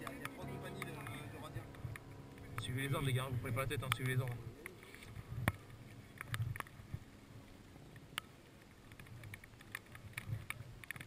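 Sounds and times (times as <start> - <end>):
light clicks and taps: 3.8 - 7.0, 7.9 - 11.0.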